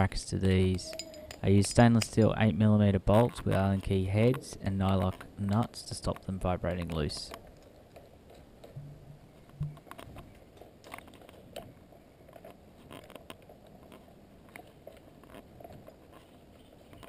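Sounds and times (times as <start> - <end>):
small metal parts clicking and scraping: 0.4 - 2.5.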